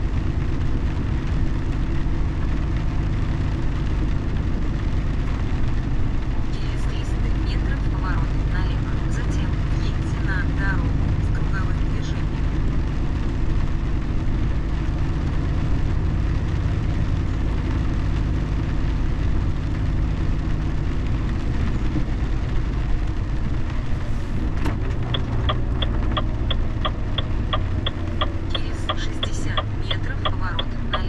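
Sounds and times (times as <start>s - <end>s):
car road and engine rumble: 0.0s - 31.0s
turn signal ticking: 24.4s - 31.0s.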